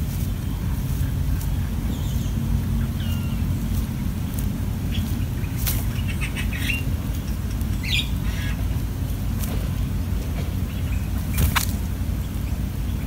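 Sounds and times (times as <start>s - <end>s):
nestlings begging chirps: 0.0s - 8.9s
steady low rumble: 0.0s - 13.0s.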